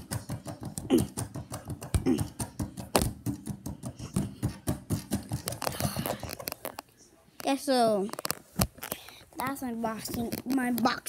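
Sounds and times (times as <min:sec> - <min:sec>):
punching ball smacks and rattles: 0:00.0 - 0:06.6.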